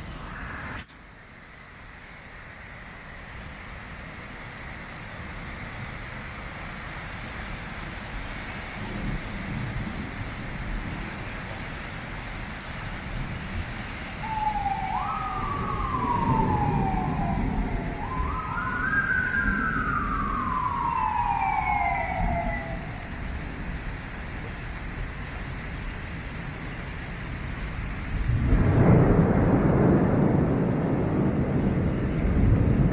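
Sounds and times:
steady rain: 0.0s - 32.9s
emergency siren wailing: 14.1s - 24.0s.

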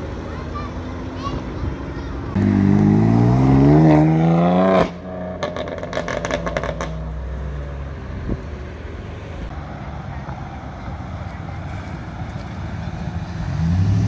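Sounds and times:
engine hum: 0.0s - 14.0s
car engine accelerating hard: 2.3s - 7.3s, 11.7s - 14.0s.

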